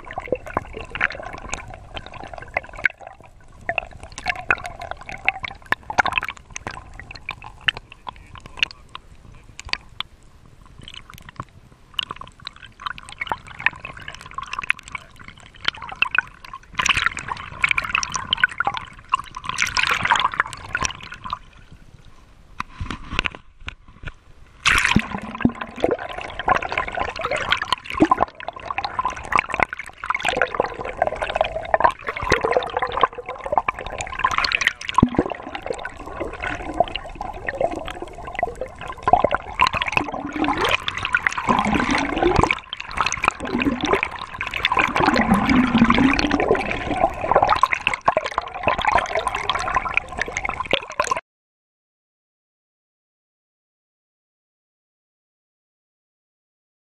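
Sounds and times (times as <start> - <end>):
splashy bubbling: 0.0 - 8.7, 24.6 - 51.2
sea water sloshing and gurgling: 0.0 - 51.2.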